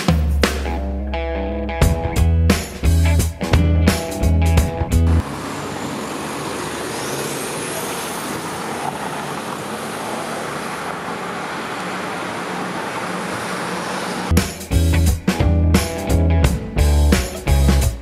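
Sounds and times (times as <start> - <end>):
music: 0.0 - 5.2, 14.3 - 18.0
car road and wind noise: 4.9 - 14.3.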